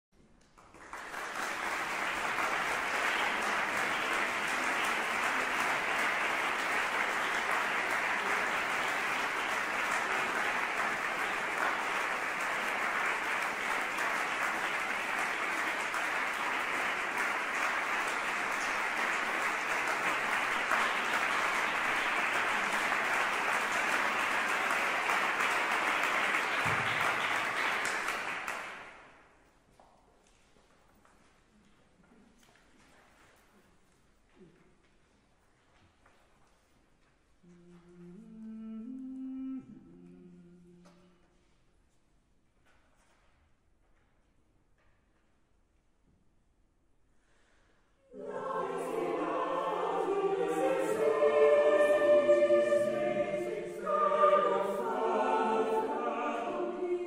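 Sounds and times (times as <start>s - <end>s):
audience applauding: 0.5s - 29.2s.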